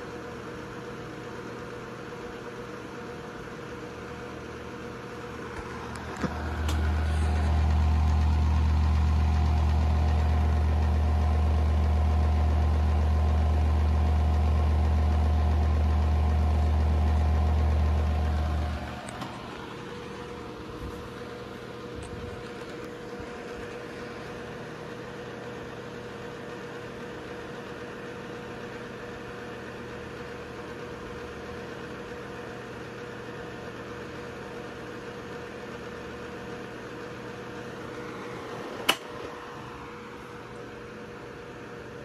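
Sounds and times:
table fan humming: 0.0 - 42.0
sharp click: 38.8 - 39.1.

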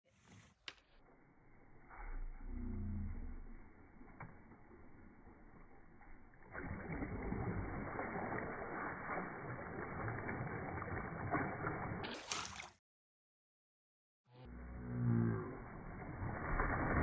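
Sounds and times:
water churning and bubbling: 4.7 - 12.3, 15.5 - 17.0.

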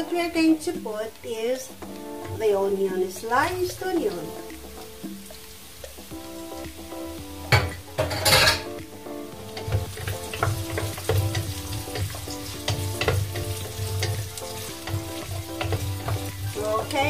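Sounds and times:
onion sizzling in oil: 0.0 - 17.0
wooden spatula scraping pot: 9.5 - 17.0.

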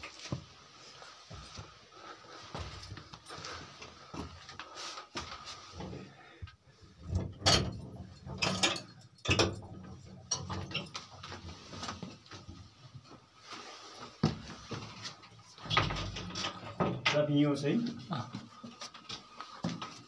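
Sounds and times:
shoes scuffing on wood and rock: 14.1 - 15.1.

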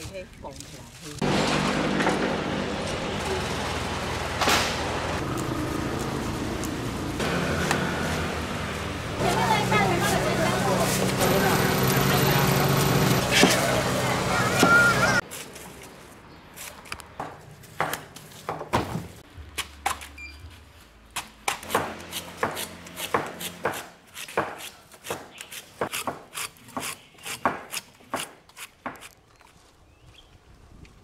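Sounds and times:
knife chopping pineapple on board: 21.5 - 29.0.

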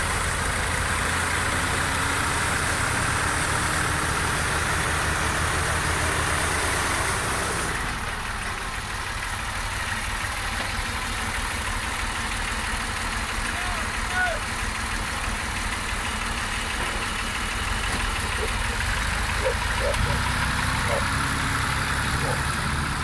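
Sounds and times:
tractor diesel engines running: 0.0 - 23.0.

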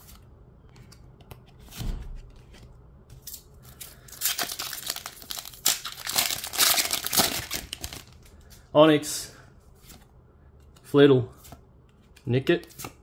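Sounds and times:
foil wrapper crinkling and tearing: 3.3 - 8.2.

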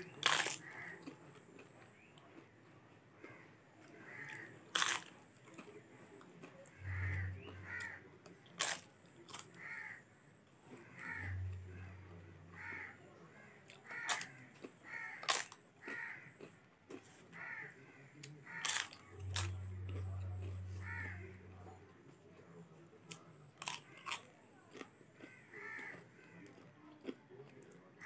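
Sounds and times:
crunching papad: 0.0 - 1.1, 4.7 - 5.6, 8.6 - 9.5, 15.2 - 15.6, 18.6 - 21.2
bird calling: 6.8 - 8.0.

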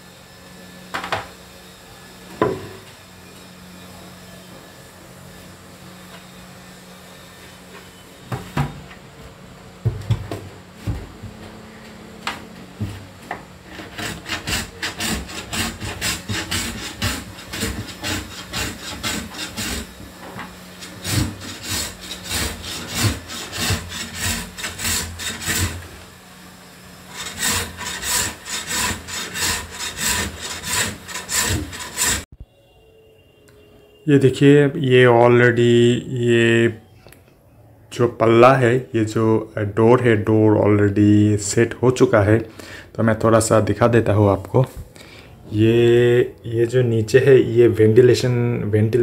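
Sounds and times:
board knocking: 9.8 - 11.1
wooden block rubbing on wood: 13.7 - 20.0, 20.8 - 25.8, 27.1 - 32.2.

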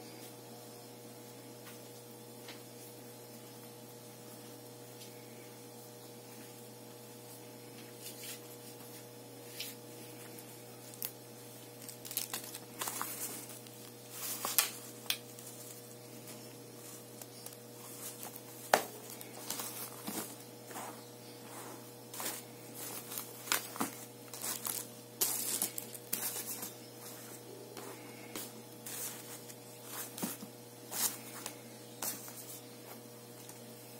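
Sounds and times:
steady low hum: 0.0 - 33.9
plastic wrapping crinkling: 9.5 - 21.0, 22.1 - 27.5, 28.8 - 32.6.

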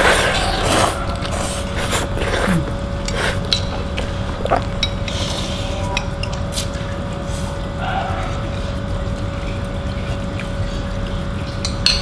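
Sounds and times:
noodles slurping: 0.0 - 6.7
steady low hum: 0.0 - 11.5
metal spoons clicking on bowls: 11.4 - 12.0.

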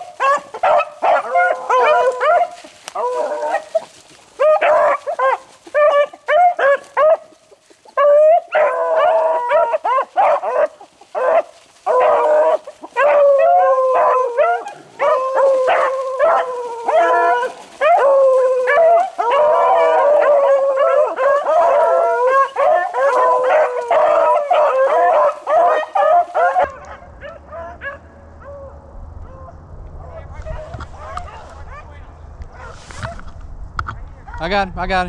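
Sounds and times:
dogs baying and howling: 0.0 - 31.9, 32.5 - 33.4
low rumble: 26.3 - 35.0.

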